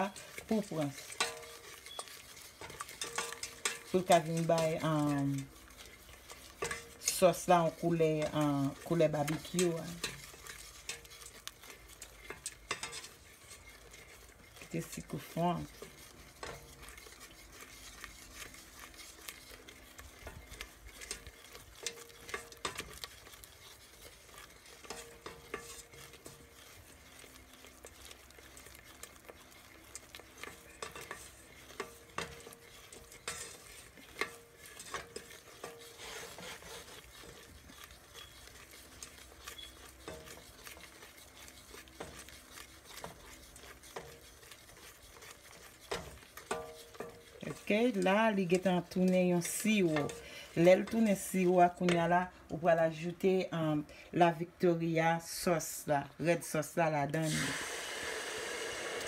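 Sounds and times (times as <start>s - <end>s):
faint sizzle: 0.0s - 59.0s
wooden spoon scraping metal pot: 0.0s - 59.0s.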